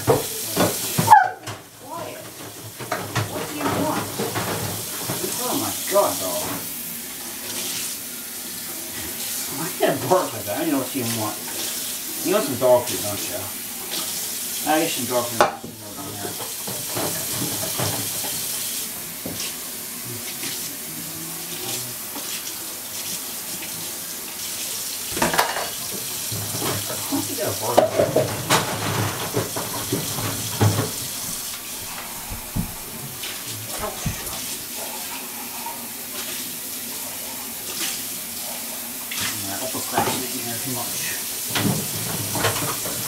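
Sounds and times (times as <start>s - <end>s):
dishes clinking in sink: 0.0s - 6.7s, 14.9s - 18.5s, 25.1s - 36.3s, 39.2s - 40.5s, 41.5s - 43.0s
tap running into sink: 0.0s - 6.7s, 15.0s - 19.6s, 25.0s - 34.7s, 39.1s - 40.4s, 41.4s - 43.0s.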